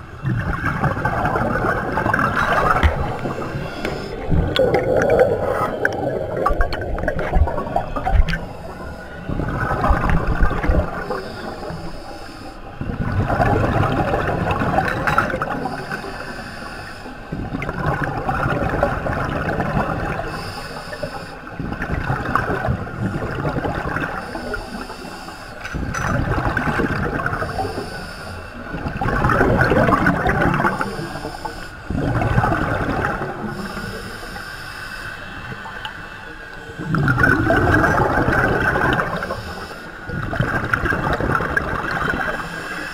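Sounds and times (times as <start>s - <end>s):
exhaled bubbles gurgling underwater: 0.0s - 42.9s
scuba regulator hiss: 11.0s - 12.6s, 15.6s - 17.2s, 20.3s - 21.4s, 24.2s - 25.6s, 27.4s - 28.6s, 30.8s - 31.9s, 33.5s - 35.7s, 39.1s - 40.0s.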